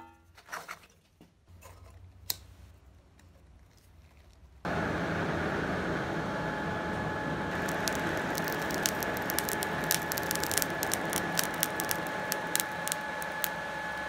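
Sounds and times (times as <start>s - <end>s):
air blower rushing with faint whine: 4.7s - 14.0s.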